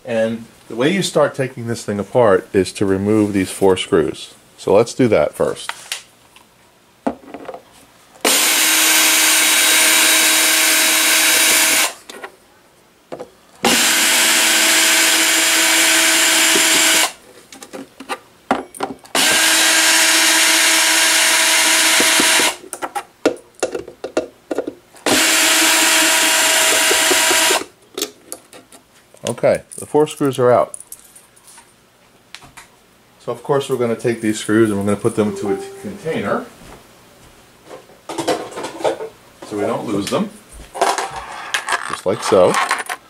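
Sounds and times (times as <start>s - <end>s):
cordless drill motor running: 8.2s - 12.0s, 13.6s - 17.2s, 19.2s - 22.6s, 25.0s - 27.7s.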